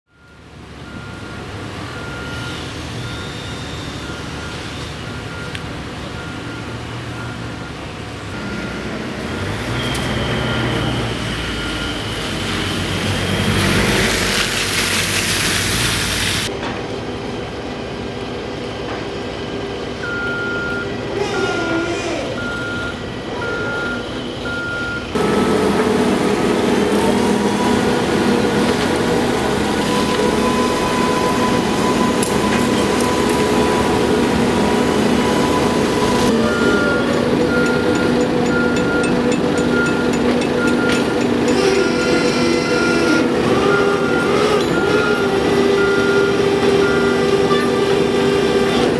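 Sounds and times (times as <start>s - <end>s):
reversing alarm beeping: 0.1s - 13.4s, 20.0s - 48.9s
engine running: 22.4s - 48.9s.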